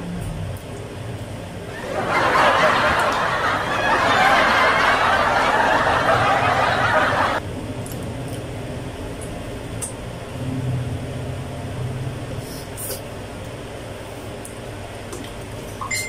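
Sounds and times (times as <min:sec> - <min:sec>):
low room noise: 0:00.0 - 0:16.0
crowd laughter: 0:01.7 - 0:07.4.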